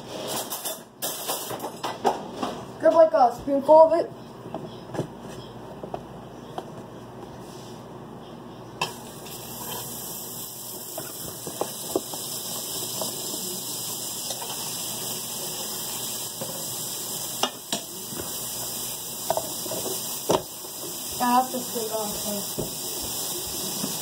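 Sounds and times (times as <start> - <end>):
butter sizzling in frying pan: 8.8 - 24.0.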